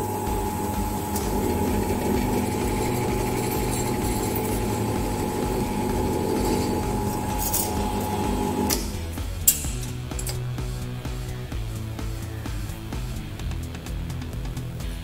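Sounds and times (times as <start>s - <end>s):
drill press motor hum: 0.0s - 10.2s.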